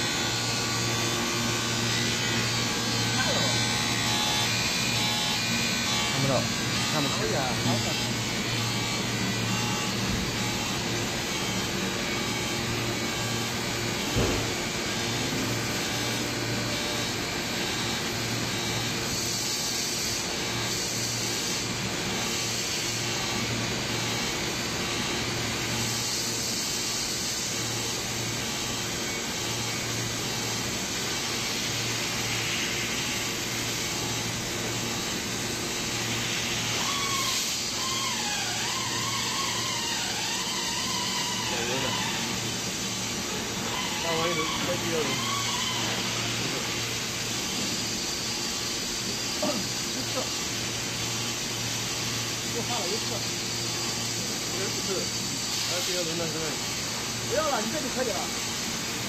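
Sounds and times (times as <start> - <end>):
welding arc hum and hiss: 0.0 - 59.0
thump: 14.2 - 14.5.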